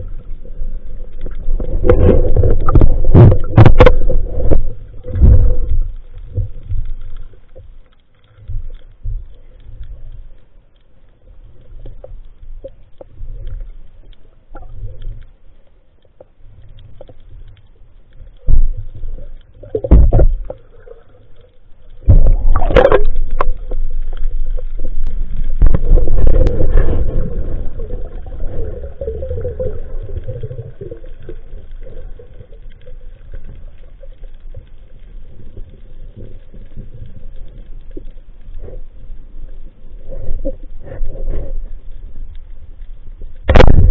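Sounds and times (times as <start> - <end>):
low rumble of moving water: 0.0 - 43.9
loud underwater thumps: 1.8 - 5.7, 19.8 - 20.4, 43.5 - 43.9.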